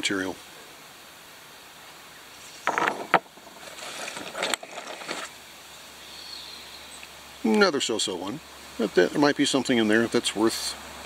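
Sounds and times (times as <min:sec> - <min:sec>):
rocks scraping and clacking: 0:02.5 - 0:05.4
sharp knocks: 0:02.7 - 0:03.6.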